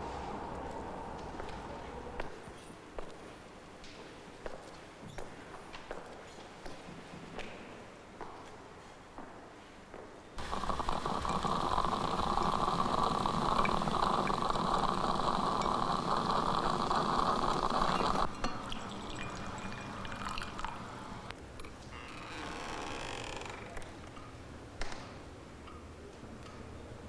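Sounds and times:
coffee pouring and spluttering: 10.4 - 21.3.

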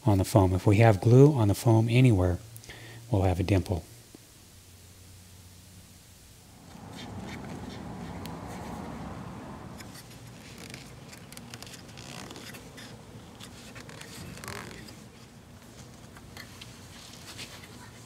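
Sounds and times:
vinyl rubbing and crackling: 6.4 - 18.0.

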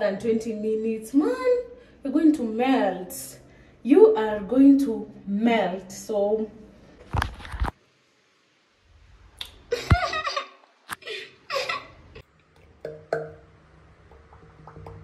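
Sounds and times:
faint steady hum: 0.0 - 15.0.

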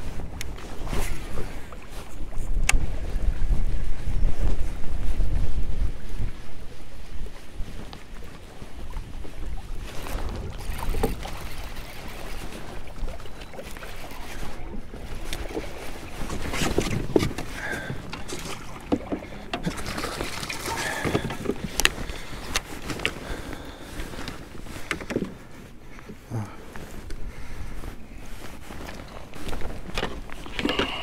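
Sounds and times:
wind rumble on microphone: 0.0 - 31.0
gear knocking against kayak hull: 16.5 - 22.7.

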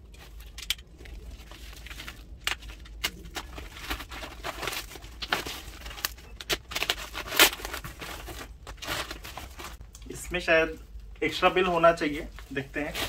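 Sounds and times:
plastic wrapping crinkling: 0.1 - 9.8.

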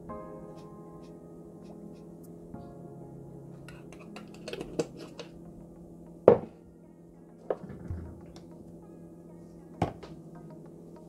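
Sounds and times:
faint background music: 0.0 - 11.0
kitchen utensils clinking: 3.7 - 5.3
sharp knock on countertop: 6.3 - 6.5.

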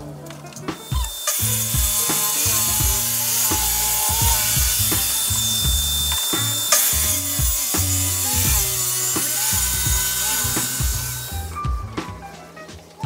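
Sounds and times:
background music with bass line: 0.0 - 13.0
circular saw cutting board: 0.7 - 11.5.

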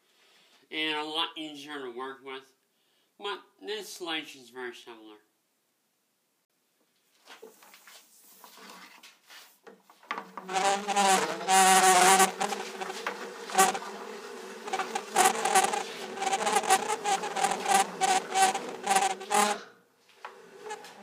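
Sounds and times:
tubing rubbing off spool: 10.3 - 21.0.

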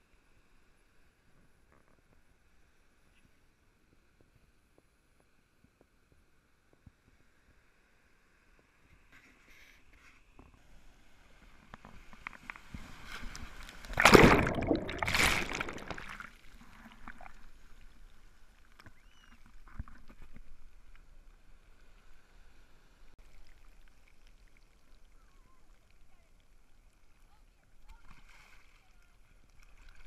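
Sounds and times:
surf washing over camera: 10.9 - 17.5.

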